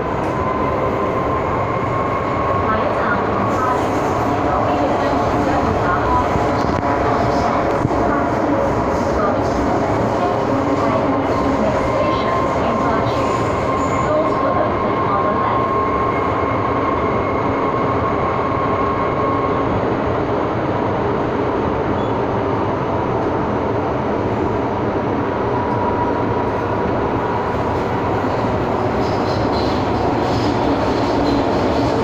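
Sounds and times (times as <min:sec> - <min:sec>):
subway train rumbling: 0:00.0 - 0:32.0.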